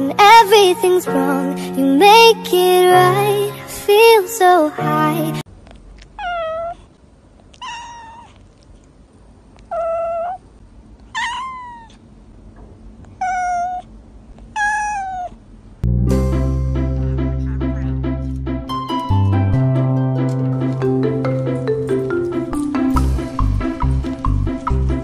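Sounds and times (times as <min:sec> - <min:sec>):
cat meowing: 0:06.2 - 0:06.9, 0:07.5 - 0:08.4, 0:09.6 - 0:10.5, 0:11.1 - 0:12.0, 0:13.1 - 0:13.9, 0:14.5 - 0:15.4.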